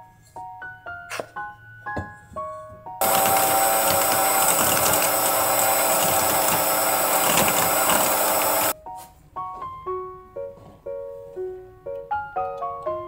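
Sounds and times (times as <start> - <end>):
electric hand mixer whining: 3.0 - 8.8.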